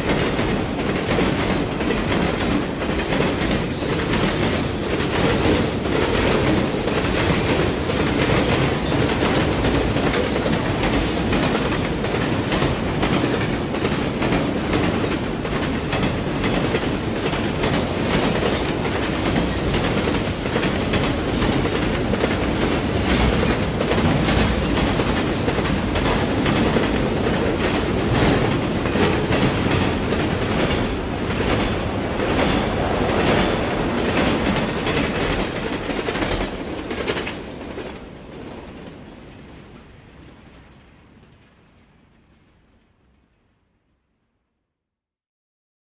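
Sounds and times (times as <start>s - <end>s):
train wheels clacking over rail joints: 0.0s - 39.0s
diesel train passing: 0.0s - 41.3s.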